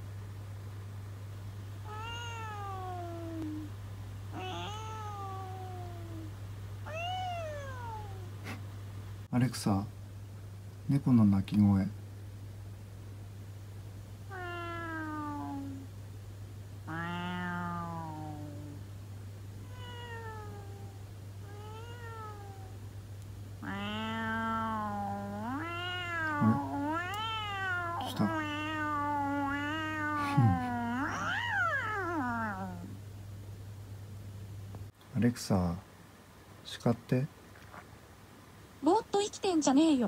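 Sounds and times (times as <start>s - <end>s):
steady low hum: 0.0s - 40.0s
cat meows from speaker: 4.4s - 5.5s.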